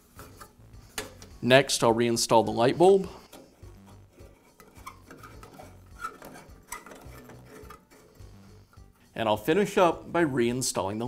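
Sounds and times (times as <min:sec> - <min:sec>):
light bulb scraping into socket: 0:03.2 - 0:08.8.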